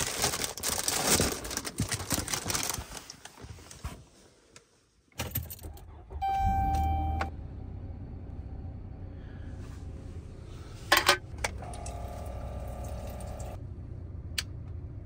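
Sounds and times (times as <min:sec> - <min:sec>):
low hum: 0:05.9 - 0:15.0.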